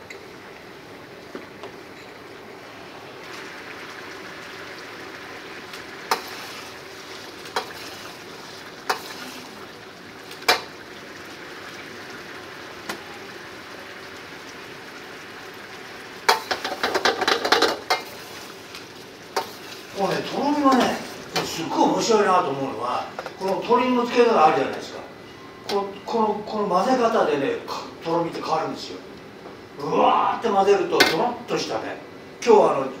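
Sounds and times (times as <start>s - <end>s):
sauce simmering in a wok: 2.3s - 21.6s.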